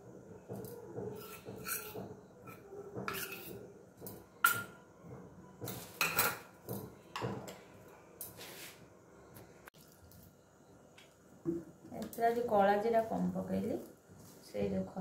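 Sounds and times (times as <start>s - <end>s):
steel bowls clinking and scraping: 1.1s - 4.8s.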